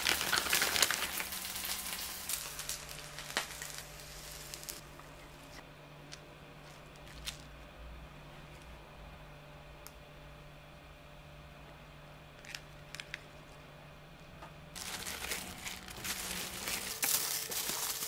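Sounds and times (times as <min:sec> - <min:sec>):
food sizzling in a frying pan: 0:00.0 - 0:04.8.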